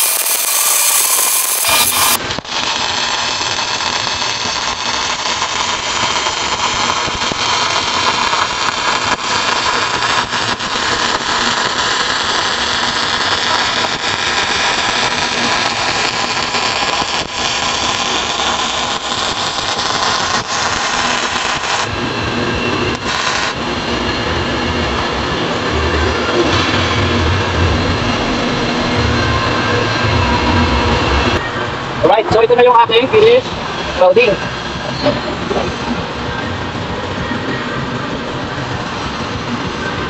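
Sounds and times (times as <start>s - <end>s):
welding arc crackling: 0.0s - 31.4s.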